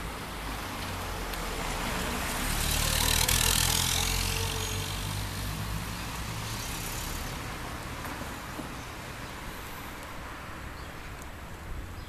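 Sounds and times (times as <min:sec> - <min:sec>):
car driving past: 0:01.5 - 0:07.3.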